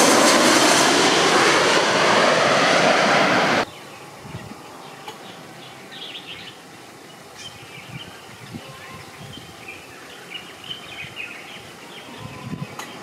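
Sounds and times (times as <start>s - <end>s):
small birds chirping: 3.6s - 13.0s.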